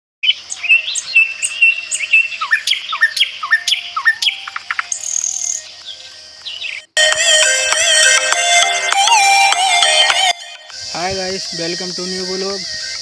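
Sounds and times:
high bird trill: 0.2 - 6.9
birds chirping and calling: 0.2 - 8.2, 8.8 - 13.0.

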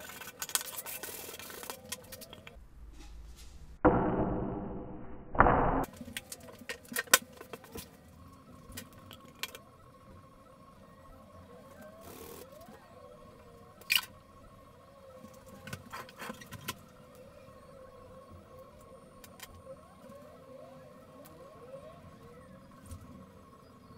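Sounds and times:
faint steady tone: 5.8 - 23.9.

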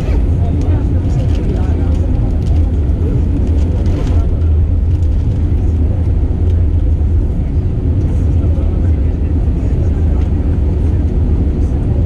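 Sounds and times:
aircraft cabin engine rumble: 0.0 - 12.0.

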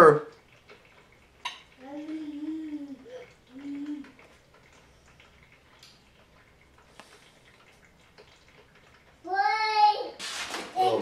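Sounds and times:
coffee trickling and dripping: 0.0 - 11.0.

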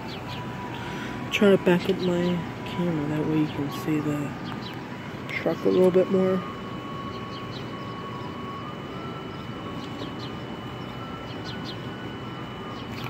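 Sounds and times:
outdoor street noise: 0.0 - 13.0
faint bird chirps: 5.4 - 8.6, 9.2 - 11.9.

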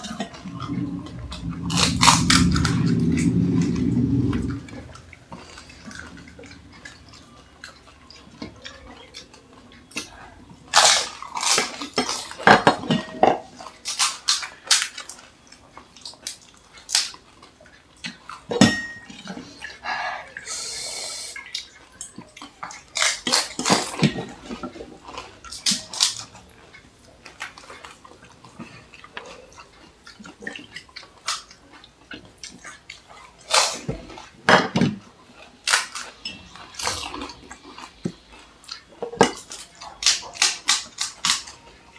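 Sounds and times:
steel bowl clinking: 18.5 - 19.4
water dripping and splashing: 21.2 - 34.9.

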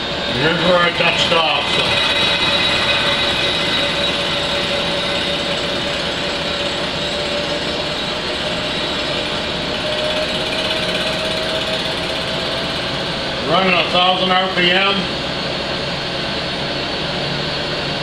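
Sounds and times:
faint machine whine: 0.0 - 18.0
milling machine hum: 0.0 - 18.0.

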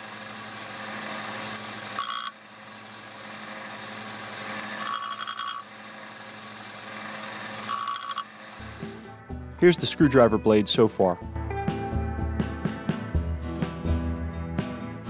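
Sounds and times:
disc grinding metal: 0.0 - 9.0
high-pitched grinding bursts: 0.0 - 9.1
sander motor hum: 0.0 - 9.2.

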